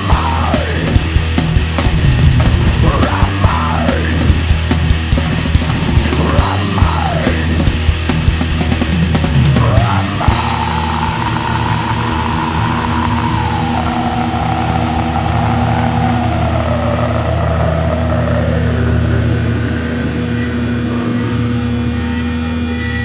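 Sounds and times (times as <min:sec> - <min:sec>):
distorted electric guitar chord: 0:00.0 - 0:23.0
high guitar note sliding down: 0:09.6 - 0:23.0.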